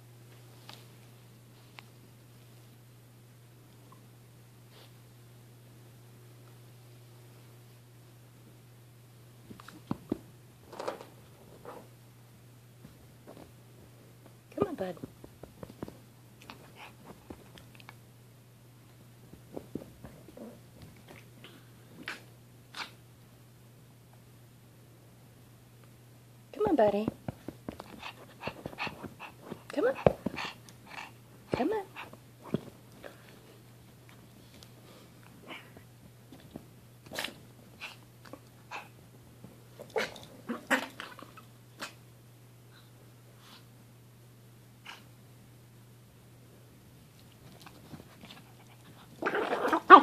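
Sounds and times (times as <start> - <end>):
soft scuffling and light taps: 19.3 - 21.3, 47.1 - 49.2.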